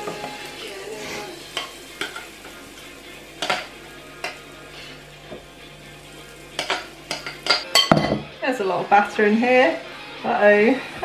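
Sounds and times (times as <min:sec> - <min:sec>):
batter sizzling: 0:00.0 - 0:08.0.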